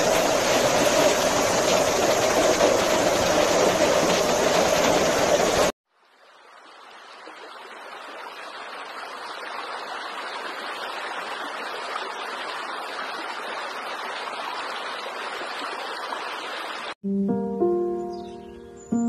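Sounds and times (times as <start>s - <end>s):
fast-flowing stream rushing: 0.0s - 5.7s.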